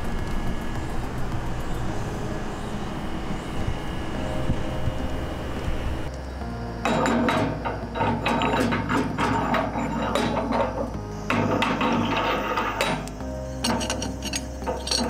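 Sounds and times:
background music with held chords: 0:00.0 - 0:15.0
metal parts clinking and scraping: 0:06.8 - 0:15.0.

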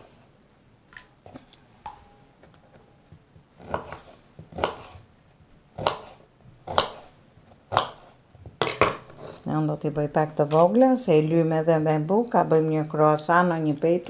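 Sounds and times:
knife chopping fruit on wooden board: 0:03.5 - 0:05.1, 0:05.8 - 0:09.1.

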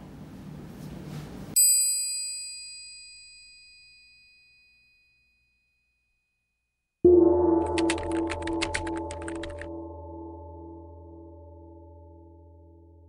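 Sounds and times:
call bell ringing: 0:07.1 - 0:12.8
music: 0:07.1 - 0:13.0.

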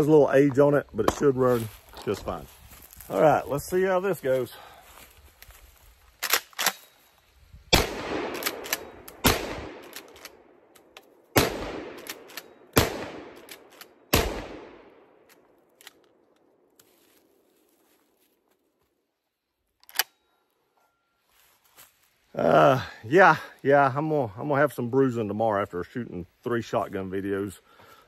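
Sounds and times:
shotgun lever clicking: 0:06.2 - 0:06.8, 0:19.8 - 0:20.2
shotgun blasts with echo: 0:07.7 - 0:09.9, 0:11.3 - 0:13.5, 0:14.1 - 0:15.0.

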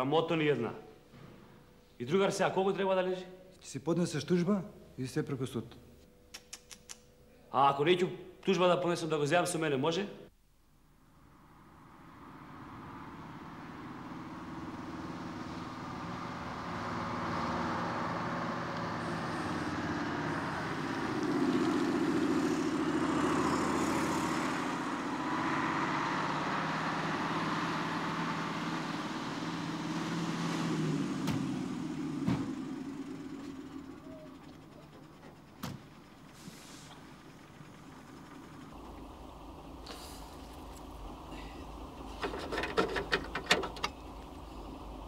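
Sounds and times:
car engine: 0:10.9 - 0:45.0
bus engine: 0:11.1 - 0:45.0.

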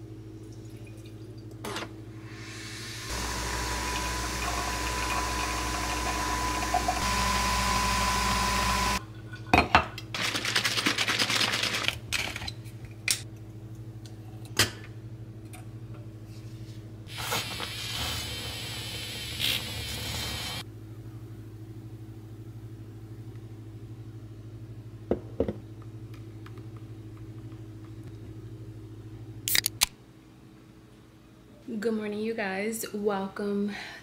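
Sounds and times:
coffee machine humming: 0:01.8 - 0:09.2
quiet steady whir: 0:02.9 - 0:09.1
liquid pouring into pitcher: 0:03.1 - 0:07.4.

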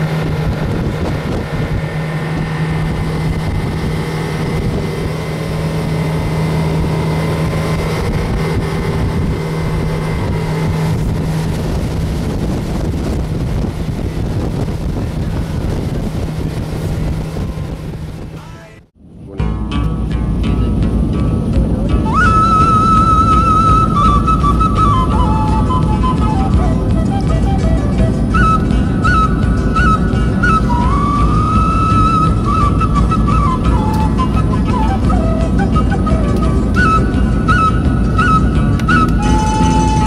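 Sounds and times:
water rushing past hull: 0:00.0 - 0:19.3, 0:20.6 - 0:40.0
boat engine running: 0:00.0 - 0:40.0
wind buffeting microphone: 0:00.0 - 0:40.0.

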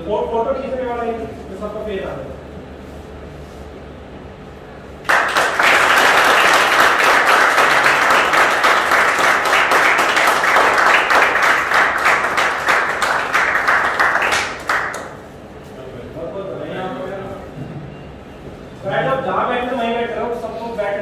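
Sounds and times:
small group clapping: 0:05.0 - 0:15.4.

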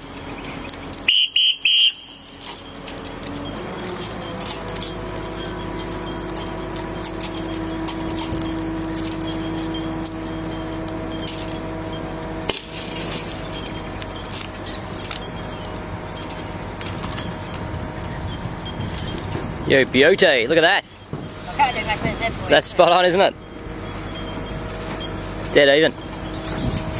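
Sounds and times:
steady mechanical hum: 0:00.0 - 0:26.9
chains and carabiners clinking: 0:01.8 - 0:26.9.

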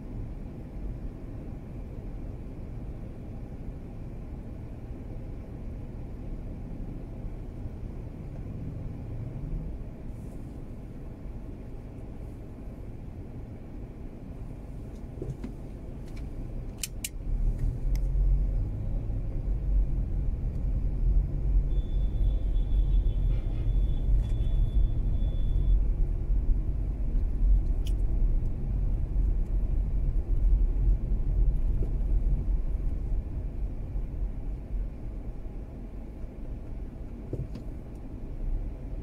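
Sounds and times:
car engine and road rumble: 0:00.0 - 0:39.0
sharp clicks: 0:16.1 - 0:17.2.

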